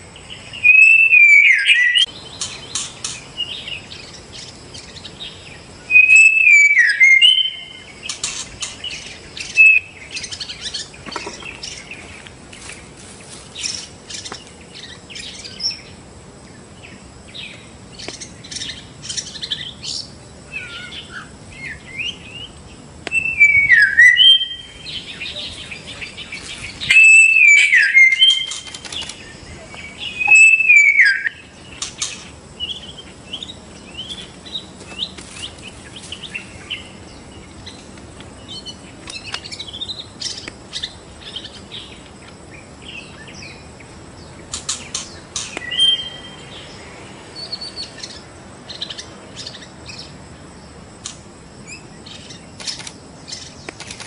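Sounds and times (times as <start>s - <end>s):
bird singing whistles and chirps: 0.3s - 12.1s, 17.3s - 37.0s, 44.7s - 46.8s.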